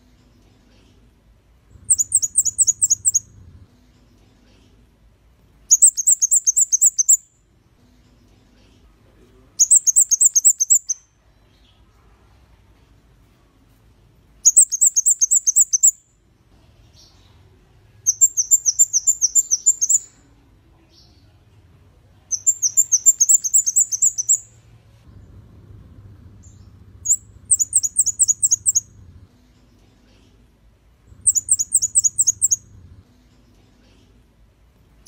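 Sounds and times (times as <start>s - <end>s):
bird singing high-pitched notes: 1.8s - 3.4s, 5.7s - 7.4s, 9.6s - 11.1s, 14.4s - 16.1s, 18.1s - 20.2s, 22.3s - 24.5s, 26.4s - 29.0s, 31.1s - 32.7s.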